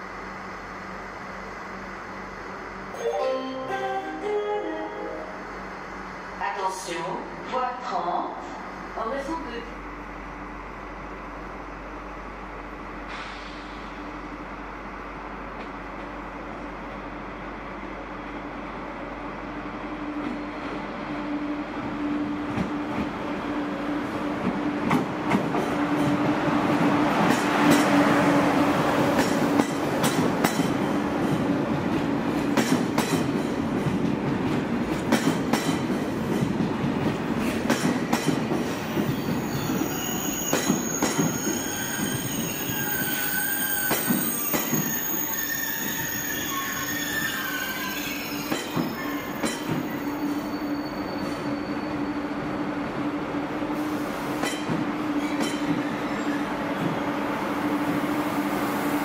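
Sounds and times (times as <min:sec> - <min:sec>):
wheel squeal: 0:39.0 - 0:52.4, 0:55.2 - 0:56.5.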